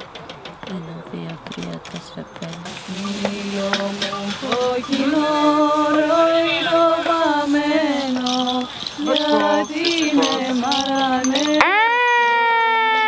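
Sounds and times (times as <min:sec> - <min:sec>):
person singing slow chant: 0:02.6 - 0:11.8.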